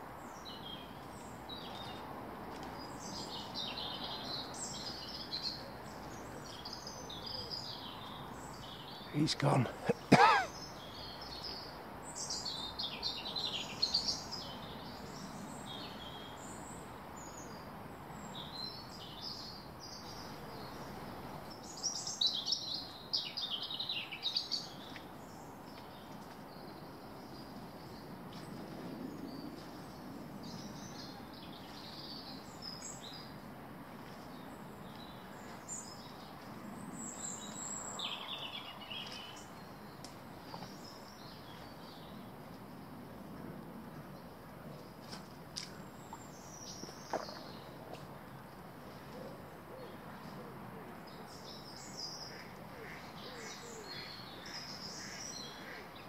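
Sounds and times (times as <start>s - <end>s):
small birds chirping: 0.2s - 42.3s.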